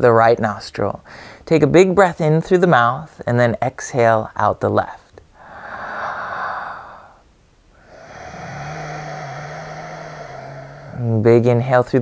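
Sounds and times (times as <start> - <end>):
low steady hum: 2.1 - 12.0
man inhaling through mouth: 5.4 - 7.2, 7.8 - 11.1
slow exhale through nostril: 5.4 - 7.2, 7.8 - 11.1.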